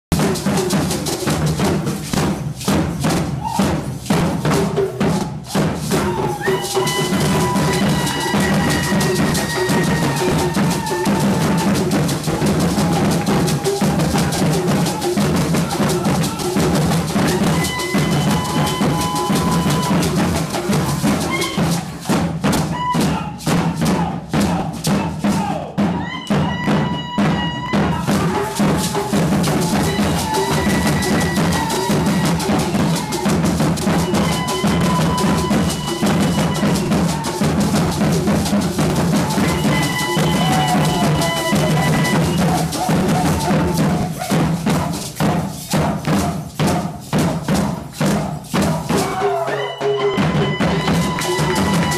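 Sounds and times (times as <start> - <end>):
drum ensemble playing: 0.1 - 51.9
held high tone: 5.9 - 21.9, 27.2 - 38.1, 39.0 - 44.3, 48.9 - 51.9.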